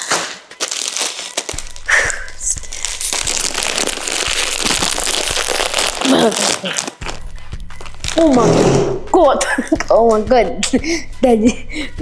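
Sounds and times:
crisp packet crinkling: 0:00.0 - 0:08.3.

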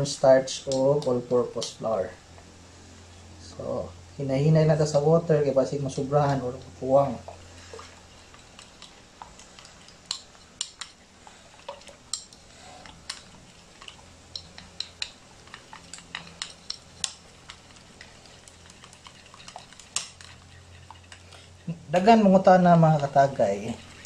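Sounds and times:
fork stirring batter in a bowl: 0:06.2 - 0:24.0.

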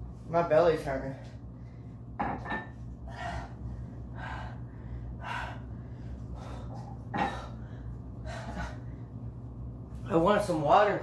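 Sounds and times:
steady low hum: 0:00.0 - 0:11.0
man breathing hard through mouth: 0:03.0 - 0:09.0.

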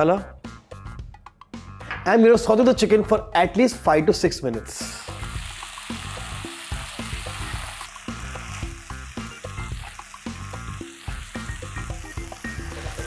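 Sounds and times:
chicken sizzling in oil: 0:04.8 - 0:13.0.

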